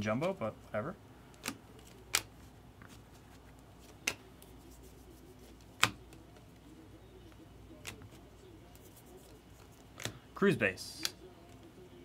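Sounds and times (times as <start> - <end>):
cards flipped by hand: 1.3 - 6.5, 7.8 - 10.2
sharp card snaps: 1.4 - 2.3.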